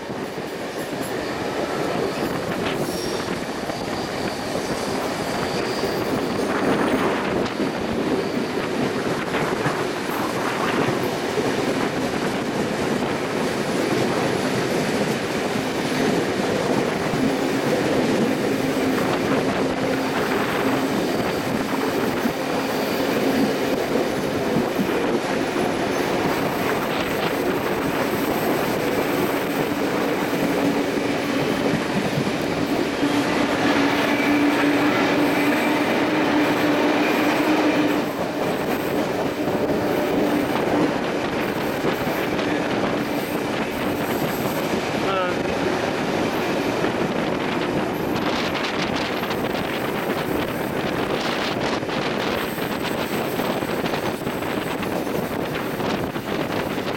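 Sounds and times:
train wheels on rails: 0.0s - 56.9s
wheel squeal: 2.0s - 7.1s.

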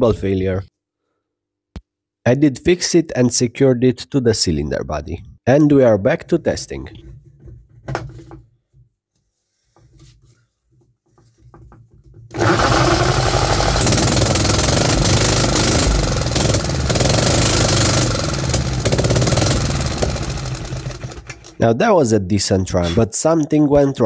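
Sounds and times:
engine running loud: 12.4s - 21.2s.

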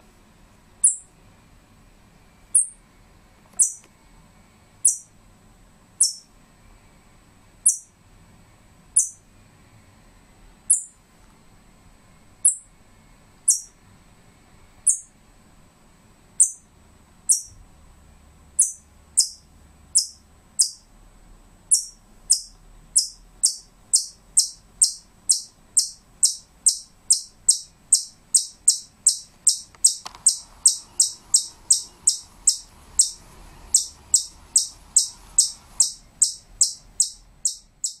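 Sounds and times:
squirrel chirping: 0.8s - 1.1s, 2.5s - 2.8s, 3.6s - 3.8s, 4.8s - 5.2s, 6.0s - 6.3s, 7.6s - 8.0s, 8.9s - 9.2s, 10.7s - 11.0s, 12.4s - 12.7s, 13.4s - 13.8s, 14.8s - 15.1s, 16.4s - 16.7s, 17.3s - 17.6s, 18.6s - 20.9s, 21.7s - 38.0s.

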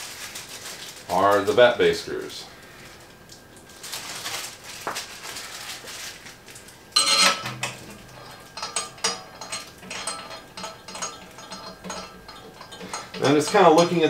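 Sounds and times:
metal screws clinking: 7.0s - 14.0s
ringing metal clank: 7.0s - 14.0s.

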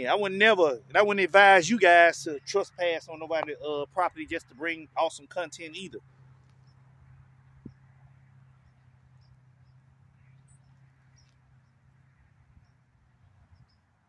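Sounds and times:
faint high bird chirps: 12.5s - 13.9s.

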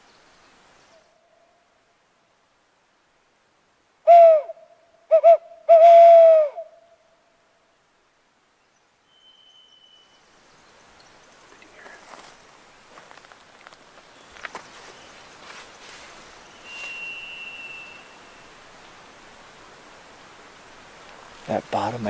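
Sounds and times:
owl hooting: 4.1s - 6.8s, 16.6s - 18.6s.

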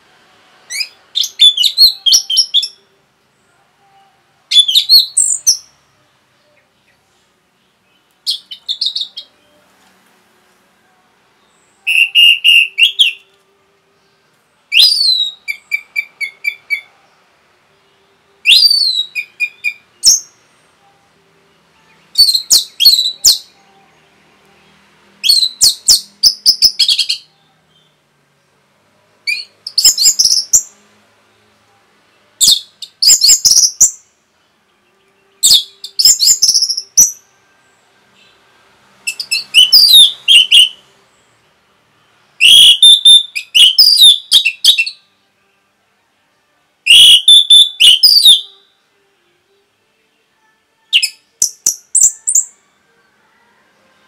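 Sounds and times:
thrush singing whistled notes: 0.6s - 3.0s, 3.8s - 7.0s, 7.8s - 9.7s, 11.3s - 17.1s, 17.7s - 28.0s, 29.2s - 30.8s, 32.2s - 38.4s, 39.0s - 41.3s, 42.0s - 45.2s, 46.9s - 48.8s, 50.8s - 54.0s.

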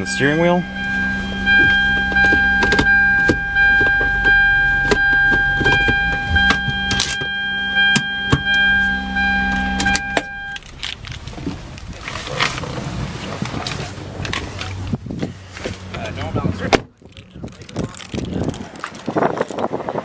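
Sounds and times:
electronic warning tone: 0.0s - 10.6s
car engine idling: 0.0s - 19.3s.

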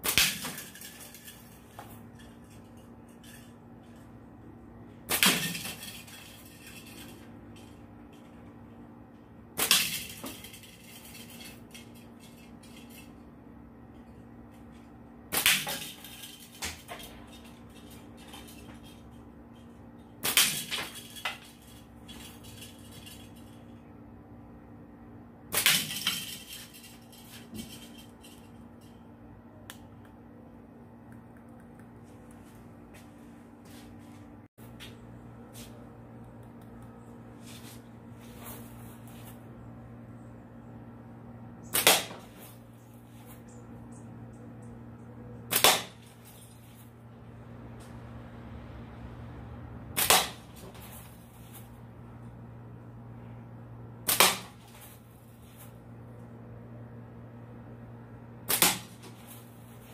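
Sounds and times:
slingshot shots cracking: 0.0s - 0.8s, 5.1s - 5.8s, 15.3s - 16.0s, 20.2s - 20.9s, 25.5s - 26.2s, 41.7s - 42.4s, 45.5s - 46.1s, 50.0s - 50.6s, 54.0s - 54.7s, 58.5s - 59.2s.

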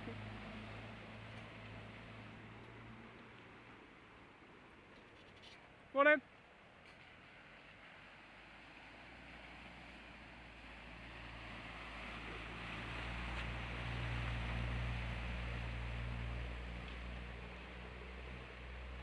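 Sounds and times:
water rushing and churning: 8.1s - 19.0s.

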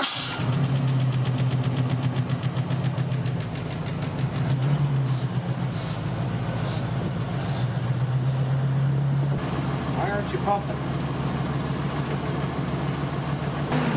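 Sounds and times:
engine idling: 0.0s - 13.9s.

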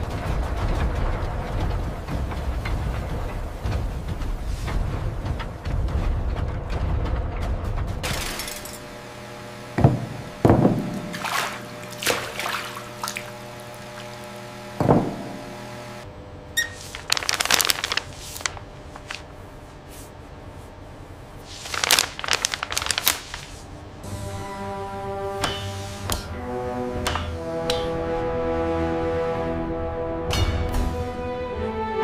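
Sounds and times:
water splashing on wooden table: 10.5s - 14.2s
music drone: 24.0s - 32.0s.

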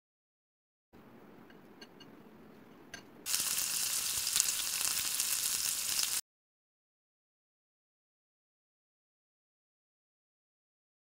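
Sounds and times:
chicken deep-frying in hot oil: 3.2s - 6.2s.

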